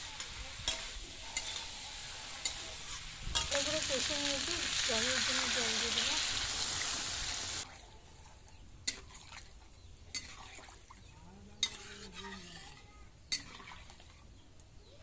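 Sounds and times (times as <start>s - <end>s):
metal spatula stirring: 0.0s - 4.4s, 10.1s - 10.7s, 11.6s - 14.2s
vegetables sizzling in a pan: 0.0s - 7.7s, 11.6s - 13.7s.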